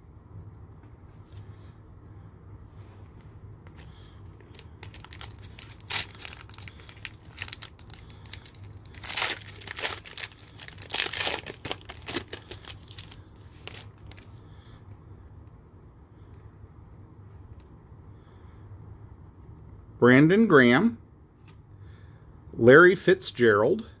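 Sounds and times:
foil pack crinkling and tearing: 3.8 - 14.4.

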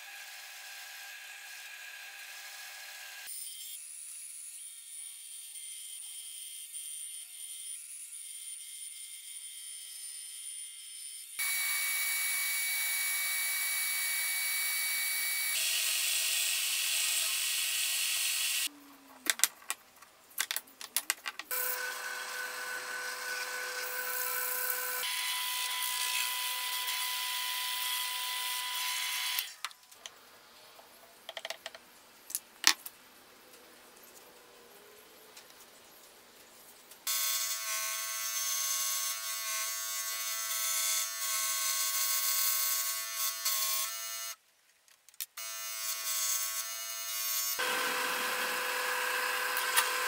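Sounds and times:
power tool running: 11.4 - 18.7, 21.5 - 29.5, 47.6 - 50.0
bandsaw cutting plywood: 21.5 - 29.5, 46.0 - 50.0.

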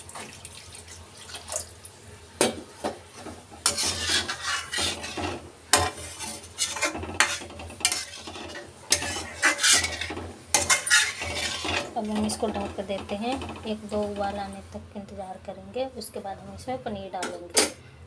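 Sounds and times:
spoon stirring watery gravy: 3.6 - 13.6.

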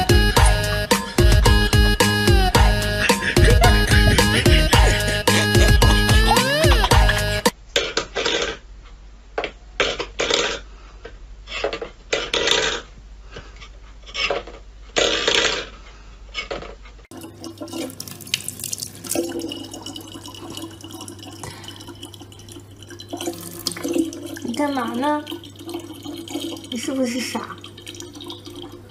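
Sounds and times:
tap water running into bottle: 17.1 - 28.9.

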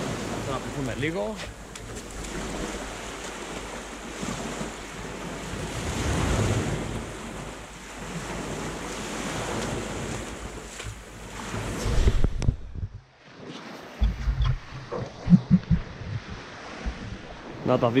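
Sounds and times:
sea water lapping: 0.0 - 18.0
wind buffeting microphone: 11.4 - 13.1, 14.0 - 17.7.

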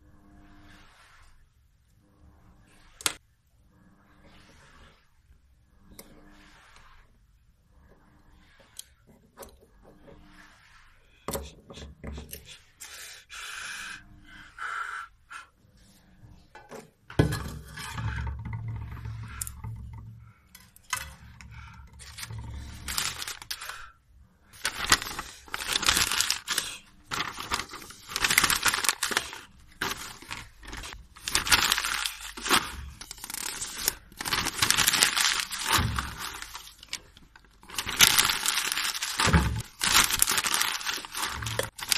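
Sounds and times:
small clicks and scrapes: 5.8 - 11.4
paper crumpling in metal pot: 21.8 - 23.9, 24.5 - 41.9.

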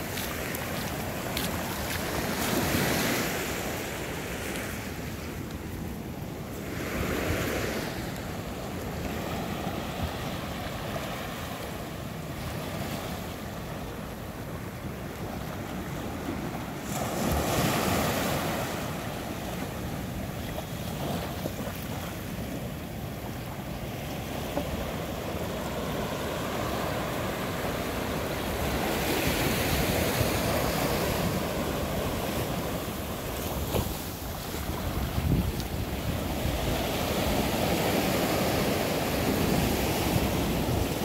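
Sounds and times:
ocean waves breaking: 0.0 - 41.0
wind on microphone: 24.4 - 41.0.

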